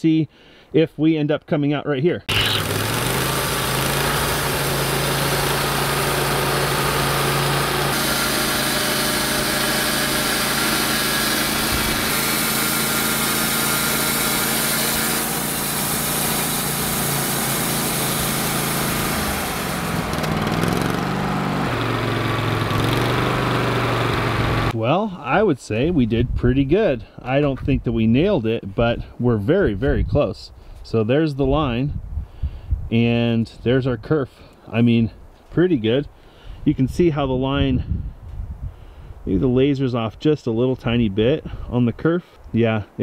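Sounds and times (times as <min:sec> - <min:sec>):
band blade sawing log: 0:02.3 - 0:24.8
gas engine running under load: 0:02.3 - 0:24.8.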